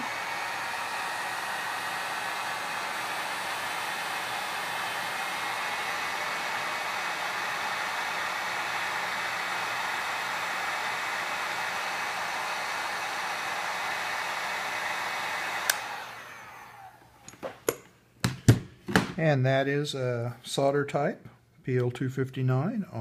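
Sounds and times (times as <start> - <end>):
heat gun blowing hot air: 0.0 - 17.2.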